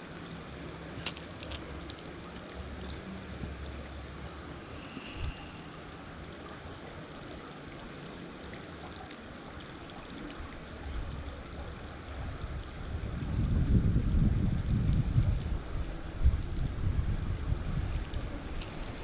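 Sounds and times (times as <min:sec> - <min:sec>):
flowing creek water: 0:00.0 - 0:19.0
wind buffeting microphone: 0:10.8 - 0:19.0.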